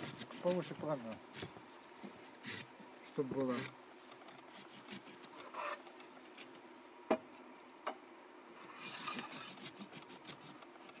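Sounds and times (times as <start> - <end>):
metal scraping on metal: 5.3 - 5.9, 8.6 - 11.0.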